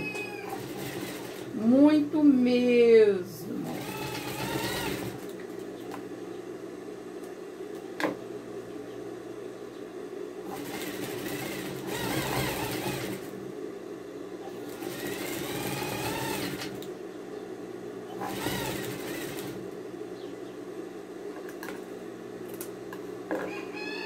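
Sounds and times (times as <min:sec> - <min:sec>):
sewing machine motor hum: 0:00.0 - 0:01.8, 0:03.5 - 0:05.6, 0:10.4 - 0:13.5, 0:14.4 - 0:16.9, 0:18.1 - 0:19.8
sewing machine stitching: 0:00.4 - 0:01.5, 0:03.6 - 0:05.3, 0:10.5 - 0:13.3, 0:14.5 - 0:16.8, 0:18.2 - 0:19.6.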